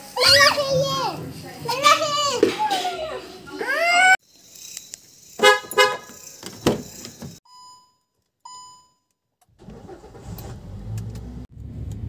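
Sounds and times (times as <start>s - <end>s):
short electronic beeps: 7.5s - 9.1s.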